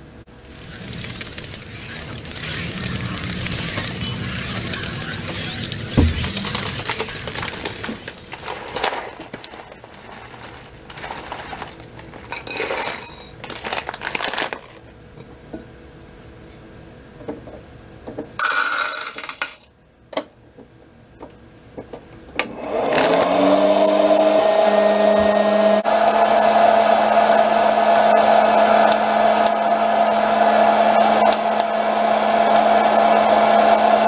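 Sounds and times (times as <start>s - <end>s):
popcorn maker fan whirring: 0.0s - 15.9s, 22.3s - 34.0s
plastic bag crinkling: 0.4s - 14.9s.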